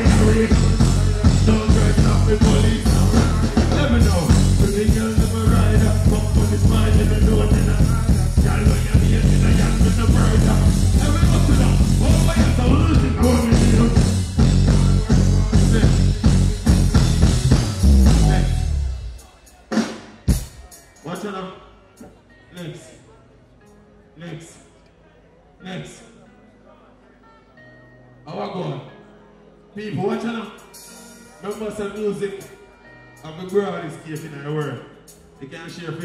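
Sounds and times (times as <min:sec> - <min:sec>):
deejay voice on microphone: 0:00.0 - 0:17.2, 0:17.8 - 0:19.4, 0:29.7 - 0:30.7, 0:31.4 - 0:32.6, 0:33.2 - 0:36.0
bass-driven dancehall backing track: 0:00.0 - 0:21.2.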